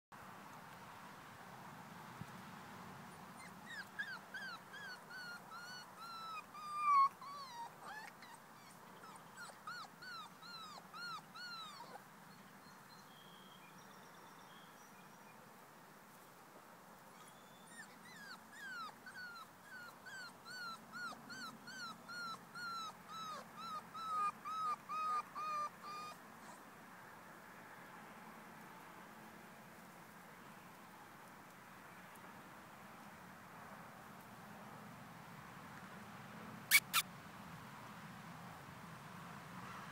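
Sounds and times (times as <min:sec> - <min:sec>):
puppy whimpering: 0:03.4 - 0:12.0, 0:17.2 - 0:26.6, 0:36.7 - 0:37.0.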